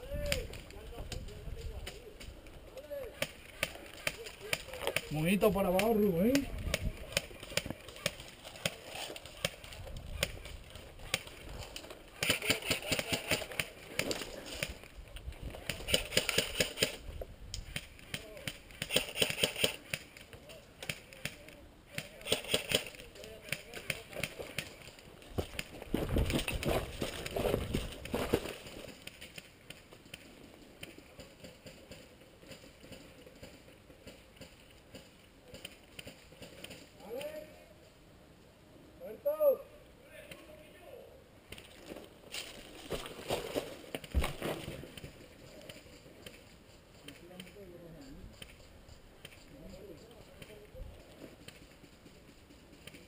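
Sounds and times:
rustling on dry twigs: 0.0 - 37.2, 41.4 - 53.0
footsteps on dirt and leaves: 24.0 - 29.2, 41.6 - 45.2.

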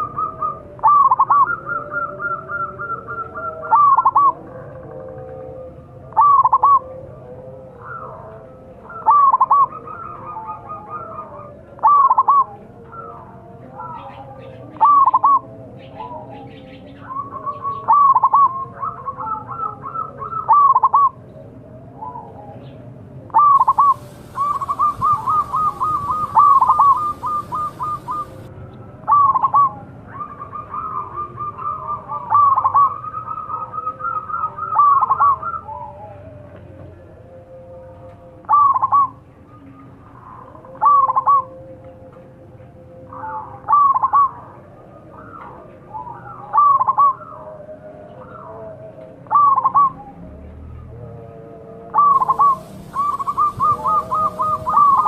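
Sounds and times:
dove cooing: 0.0 - 7.1, 7.7 - 21.3, 23.3 - 36.4, 38.5 - 39.2, 40.2 - 41.6, 43.1 - 50.2, 51.9 - 55.0
hiss with high steady tone: 23.6 - 28.5, 52.2 - 55.0.

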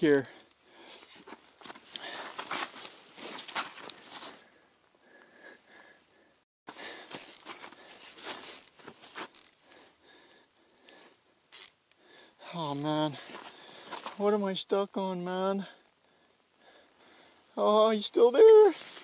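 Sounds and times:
rod and clothing handling clicks: 0.1 - 4.0, 6.7 - 14.2, 18.4 - 19.0
spinning reel cranking: 7.1 - 9.7, 11.5 - 11.8, 18.7 - 19.0.

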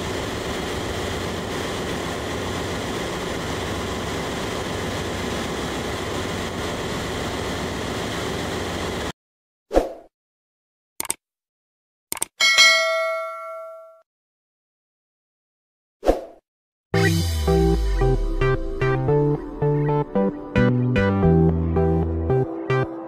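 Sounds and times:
engine room machinery hum: 0.0 - 9.1.

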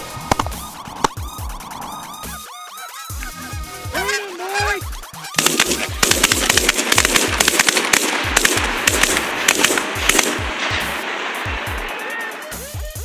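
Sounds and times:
geese honking: 0.0 - 13.0
music beat: 0.0 - 13.0
shotgun fire: 5.4 - 13.0.

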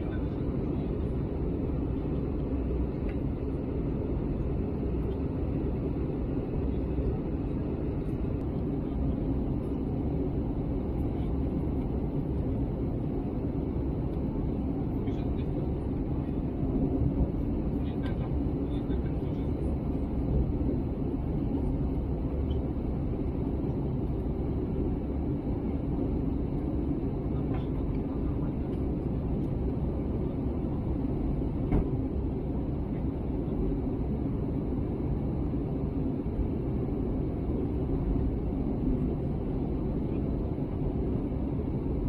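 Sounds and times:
airplane cabin engine rumble: 0.0 - 42.0.

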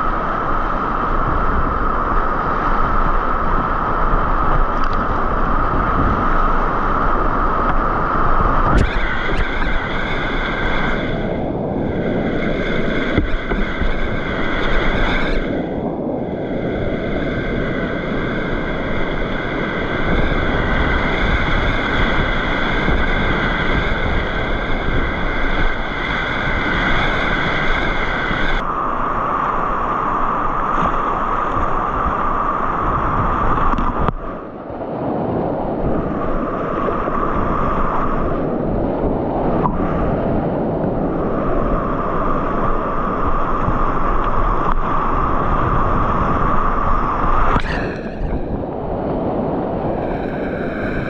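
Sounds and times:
wind on microphone: 0.0 - 51.0
river rapids roaring: 46.2 - 51.0.

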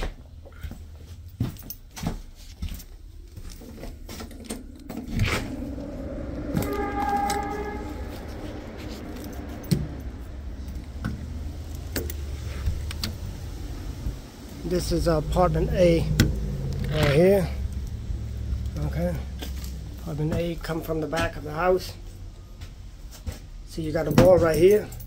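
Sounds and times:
footsteps: 0.0 - 15.4
traffic rumble: 0.0 - 25.0
short pitched tone: 4.1 - 10.1
handling clicks and knocks: 10.7 - 13.3, 23.2 - 25.0.

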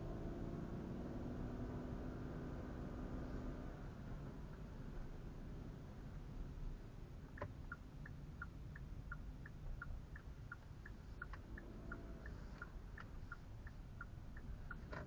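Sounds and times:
engine and road rumble: 0.0 - 15.0
turn signal ticking: 5.6 - 15.0.

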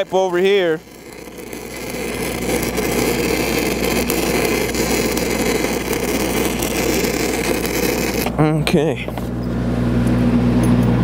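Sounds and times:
welding arc crackling hiss: 0.0 - 8.5.

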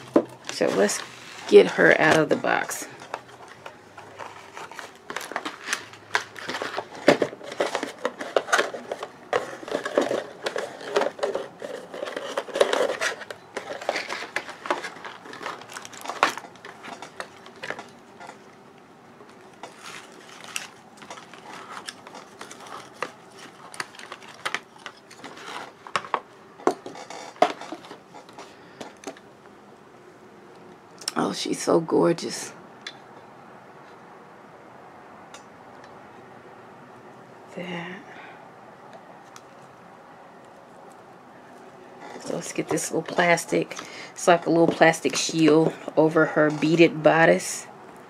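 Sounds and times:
packaging rustling and crinkling: 0.0 - 18.5, 19.2 - 29.2.

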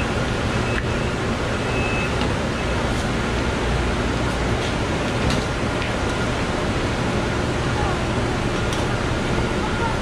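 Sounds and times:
steady rushing noise beside train: 0.0 - 10.0.

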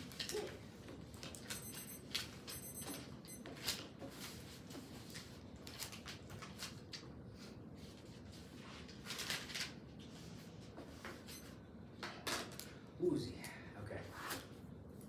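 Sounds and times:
papers rustling: 3.6 - 10.6.

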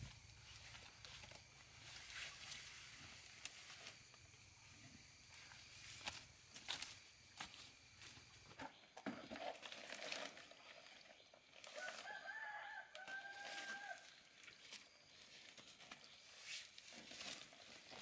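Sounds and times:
faint rooster crowing: 11.7 - 14.3.

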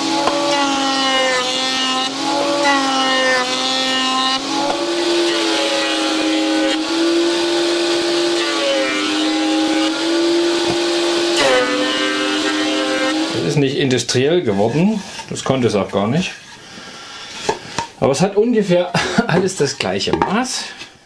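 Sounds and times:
planer motor whine: 0.0 - 13.5.

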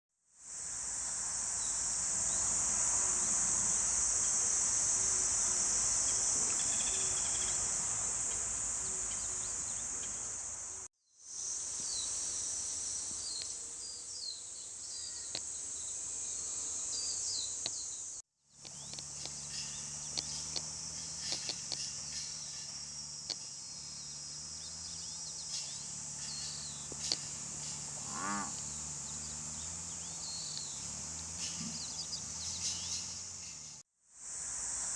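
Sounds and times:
cicadas droning: 0.4 - 34.9
birds chirping: 13.0 - 33.8.

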